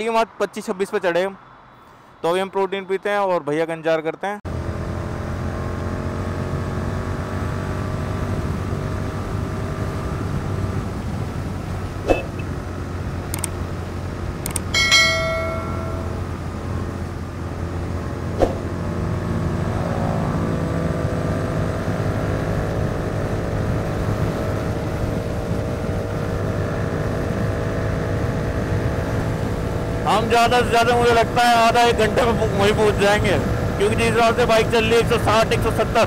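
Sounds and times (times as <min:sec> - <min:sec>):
motorcycle engine cruising: 0:04.5 - 0:36.0
sharp clicks: 0:13.3 - 0:13.6, 0:14.4 - 0:14.7
metallic ringing ping: 0:14.7 - 0:16.5.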